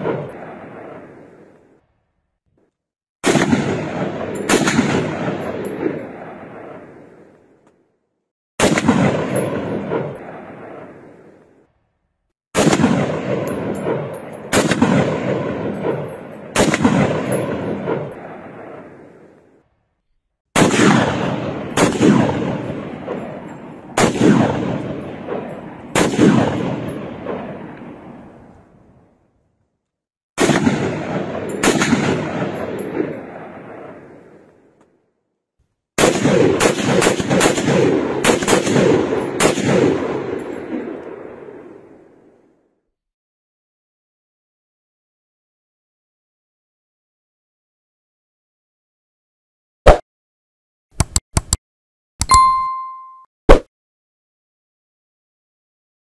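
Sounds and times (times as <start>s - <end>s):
rifle firing bursts with echo: 0.0s - 1.5s, 3.2s - 7.3s, 8.6s - 11.4s, 12.6s - 19.3s, 20.6s - 28.2s, 30.4s - 34.4s, 36.0s - 42.1s.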